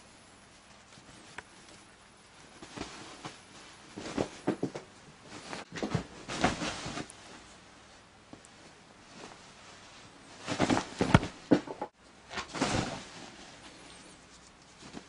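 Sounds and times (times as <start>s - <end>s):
kitten rustling on duvet: 0.4s - 11.3s.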